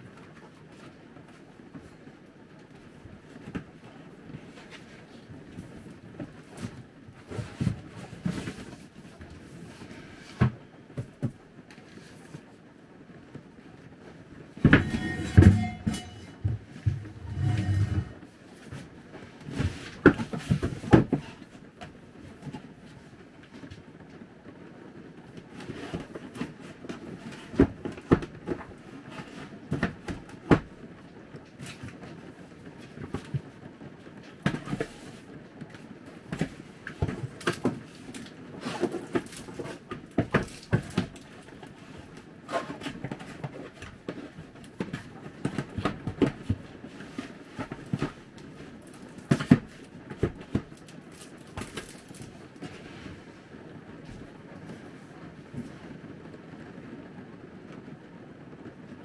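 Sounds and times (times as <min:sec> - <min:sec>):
rustling: 0:00.0 - 0:12.6, 0:13.7 - 0:24.2
objects knocking and clunking: 0:14.5 - 0:18.8, 0:19.4 - 0:22.6, 0:34.3 - 0:52.8.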